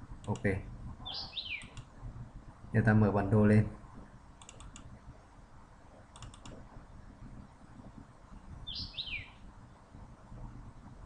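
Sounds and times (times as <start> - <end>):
computer mouse clicking: 1.6 - 1.9, 4.4 - 4.9, 6.1 - 6.6.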